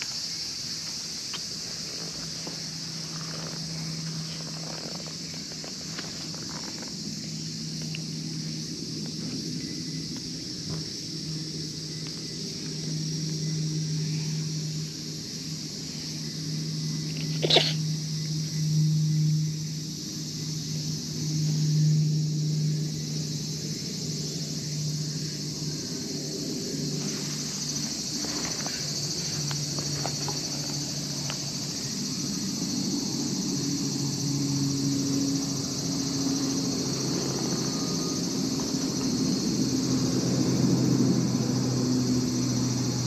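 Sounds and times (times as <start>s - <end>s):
insects buzzing: 0.0s - 43.0s
cat purring: 1.8s - 6.9s.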